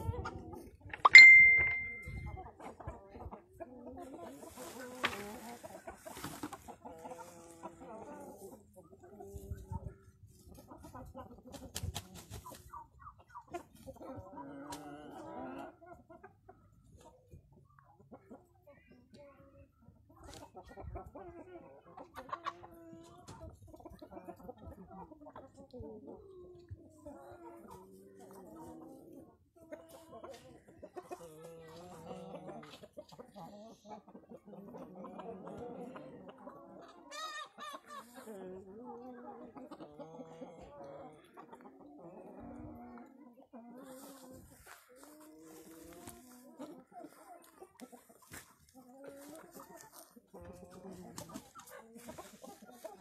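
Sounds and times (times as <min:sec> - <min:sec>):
chickens clucking: 0:00.0 - 0:53.0.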